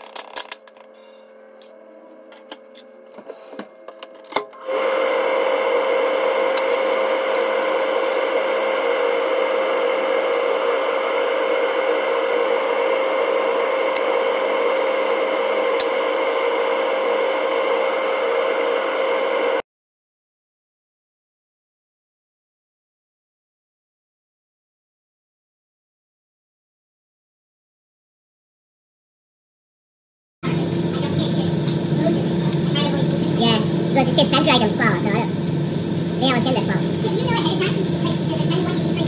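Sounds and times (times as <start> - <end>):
electric motor humming and whirring: 0.5 - 19.6, 30.4 - 39.0.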